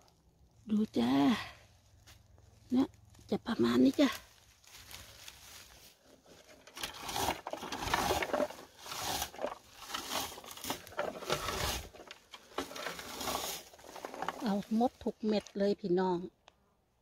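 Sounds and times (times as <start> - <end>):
scoop raking through bushes: 3.8 - 15.7.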